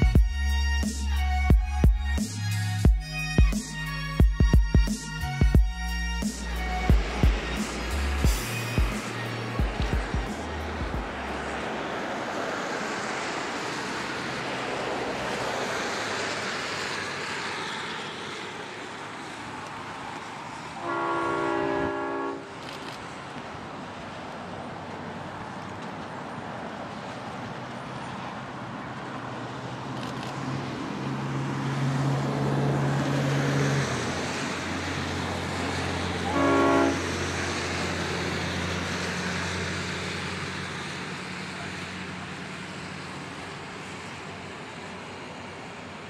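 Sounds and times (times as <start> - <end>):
diesel locomotive engine running: 0.0 - 46.0
train horn blast: 20.8 - 22.6, 36.1 - 37.6.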